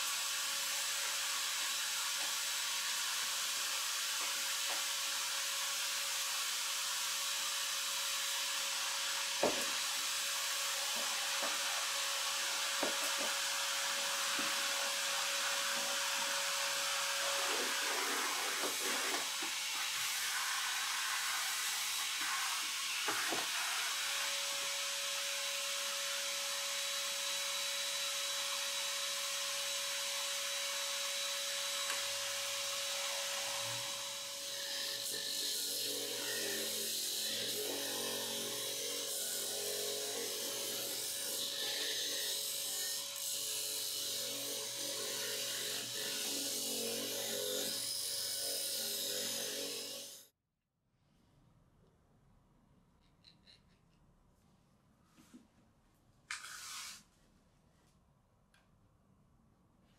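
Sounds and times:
shop vacuum running: 7.9 - 25.9.

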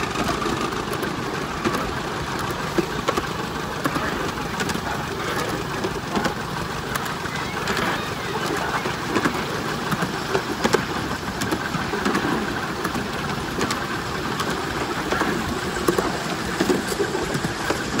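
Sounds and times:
sharp track clicks: 0.0 - 18.0
train wheels rattling rumble: 0.0 - 18.0.

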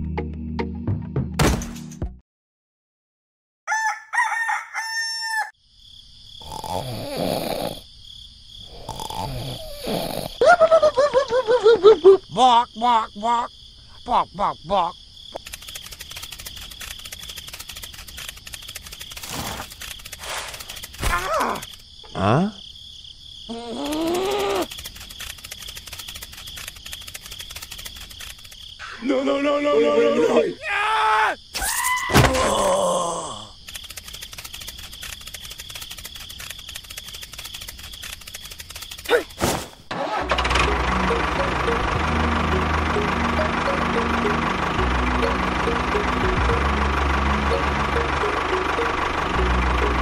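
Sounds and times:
rooster crowing: 3.7 - 5.6
cartoon snores with whistle: 6.4 - 7.9, 8.7 - 10.4, 21.4 - 22.6
cartoon vocal sound effect: 12.3 - 15.0, 21.0 - 22.6, 23.5 - 24.7
crackling clatter of clicks: 15.4 - 21.8, 23.9 - 28.7, 33.6 - 39.2.

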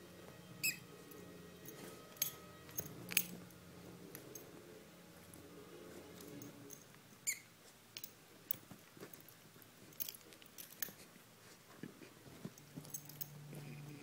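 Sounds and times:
rat squeak: 7.2 - 7.5.

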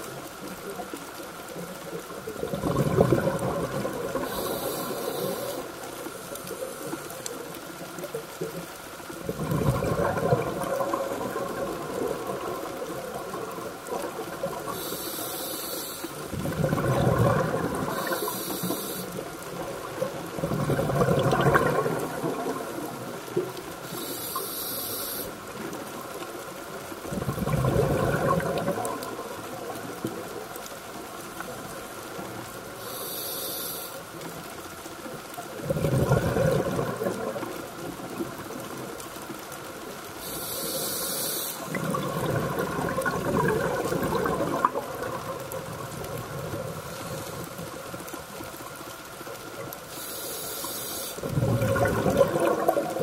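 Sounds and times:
bubbles gurgling underwater: 1.9 - 5.7, 8.0 - 14.9, 16.1 - 23.9, 25.4 - 30.6, 35.4 - 39.8, 41.6 - 49.9, 51.2 - 53.0
hissing regulator inhalations: 4.2 - 5.8, 14.7 - 16.2, 17.9 - 19.2, 23.8 - 25.4, 32.8 - 34.0, 40.2 - 41.7, 49.9 - 51.3.

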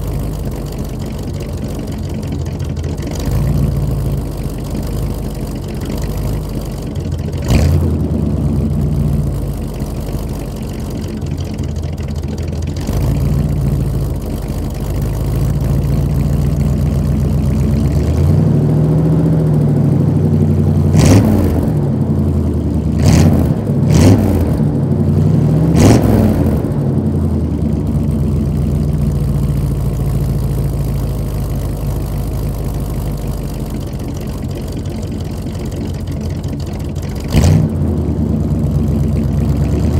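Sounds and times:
engine revving: 0.0 - 33.0, 33.7 - 39.9
pickup engine idling: 0.0 - 39.9
exhaust pops: 19.8 - 39.9.

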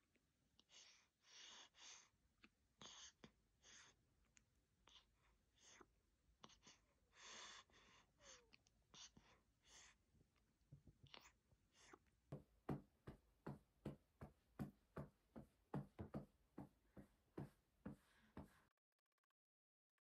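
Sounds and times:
hand patting baby's back: 12.3 - 18.6.

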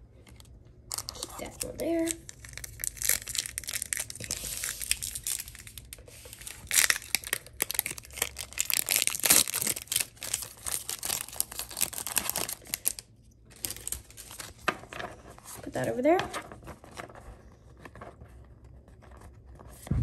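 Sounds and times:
foil wrapper crinkling and tearing: 0.9 - 15.6.

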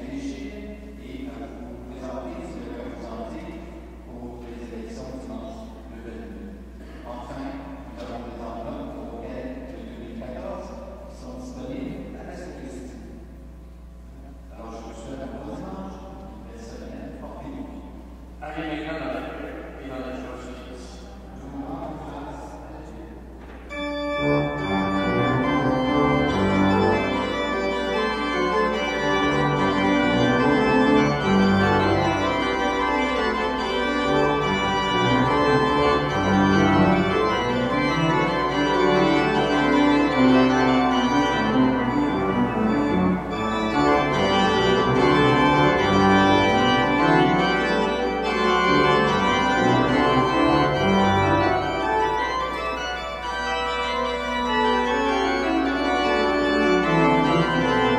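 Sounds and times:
church organ chords: 0.0 - 57.9.

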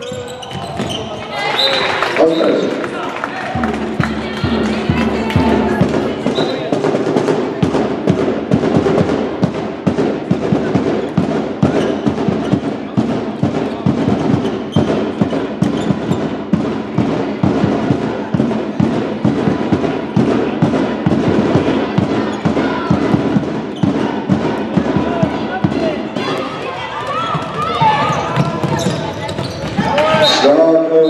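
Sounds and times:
sharp knocks and bangs: 3.6 - 26.3.

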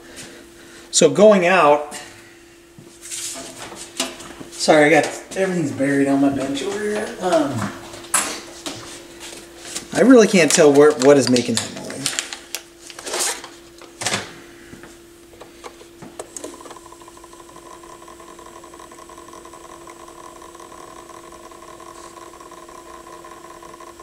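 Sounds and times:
turntable motor hum: 2.1 - 24.0.

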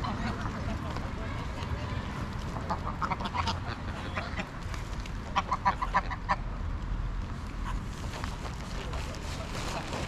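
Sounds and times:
geese honking: 2.6 - 4.5, 5.3 - 6.4.

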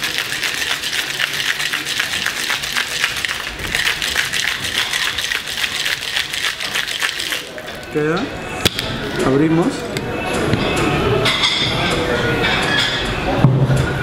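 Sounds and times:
ice rattling in cocktail shaker: 0.0 - 8.0.

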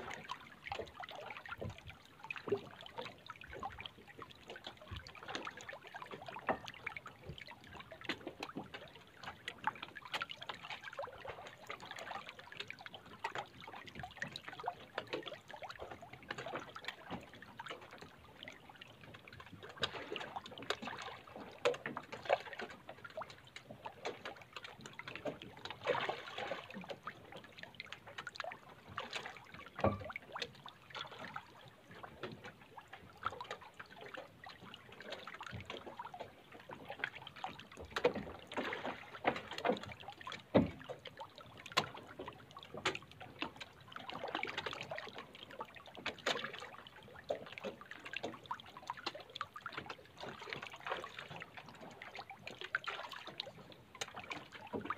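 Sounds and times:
fish splashing at water surface: 25.3 - 27.1.

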